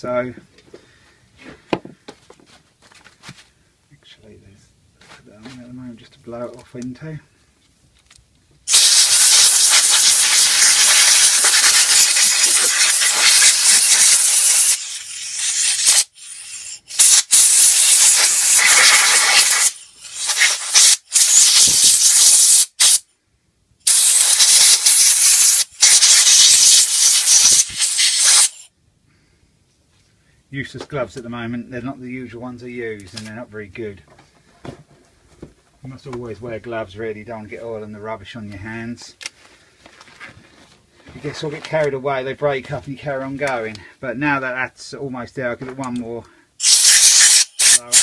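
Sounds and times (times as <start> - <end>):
compressed air blow gun hissing: 8.7 - 23.1, 23.8 - 28.7, 46.6 - 48.0.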